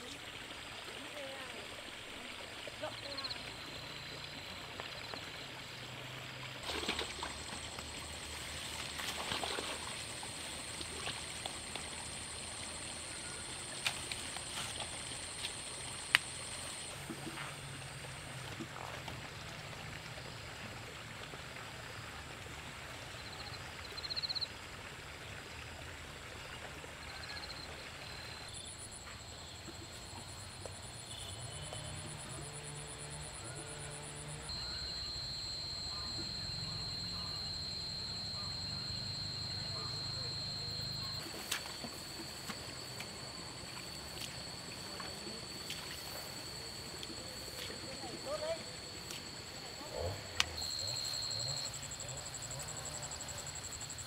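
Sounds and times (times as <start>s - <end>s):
frogs and insects calling: 0.0s - 22.3s, 23.1s - 24.6s, 26.4s - 54.0s
water trickling: 0.0s - 54.0s
knocks and splashes: 6.6s - 7.9s
high-pitched buzz: 28.6s - 54.0s
fast pulsing call: 31.4s - 54.0s.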